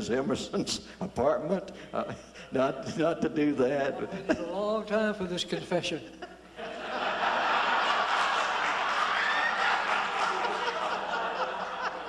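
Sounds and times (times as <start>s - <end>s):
audience laughing: 6.2s - 12.0s.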